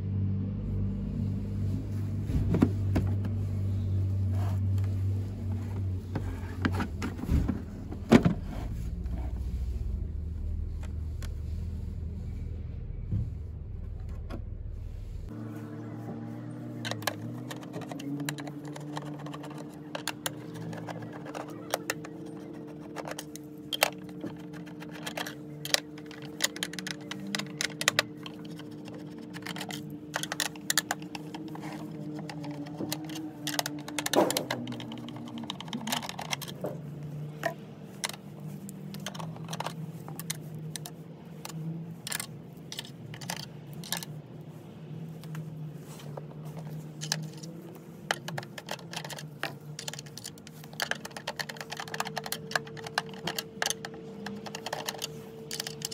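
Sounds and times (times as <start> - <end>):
screwdriver clicking on plastic: 16.9 - 44.0, 46.5 - 55.9.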